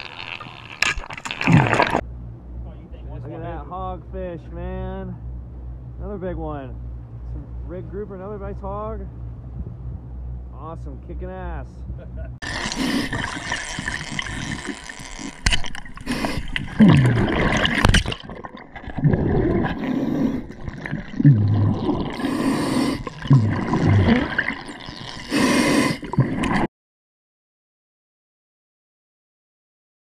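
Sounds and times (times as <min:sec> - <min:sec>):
gurgling exhaled bubbles: 0:00.0 - 0:02.0, 0:12.4 - 0:26.7
diver breathing through a regulator: 0:12.4 - 0:17.9, 0:19.0 - 0:26.6.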